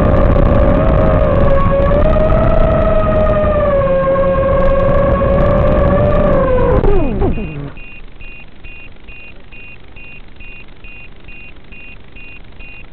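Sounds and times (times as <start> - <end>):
drone motors whining: 0.0 - 12.9
short high beeps: 7.0 - 12.9.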